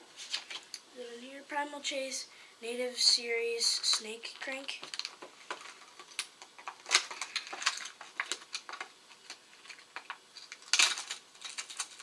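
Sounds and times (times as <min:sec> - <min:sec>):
plastic box clicks and crinkles: 0:04.7 - 0:12.0.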